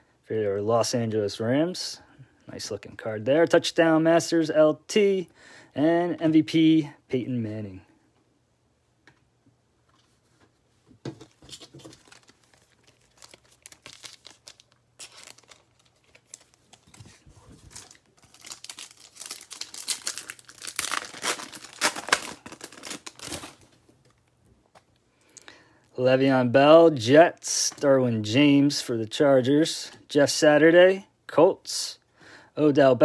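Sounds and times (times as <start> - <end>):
foil wrapper crackling and tearing: 11.8 - 23.7.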